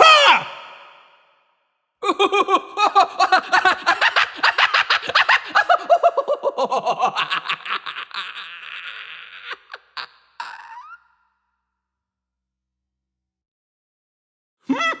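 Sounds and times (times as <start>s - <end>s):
person laughing heartily: 2.0s - 11.0s, 14.7s - 15.0s.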